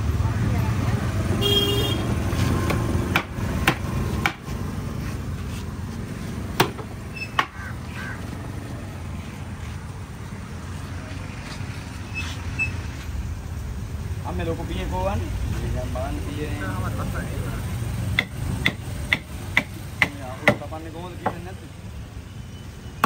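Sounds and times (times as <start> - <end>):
low traffic rumble: 0.0 - 23.0
sharp knocks: 2.6 - 4.5, 6.6 - 7.6, 18.2 - 21.4.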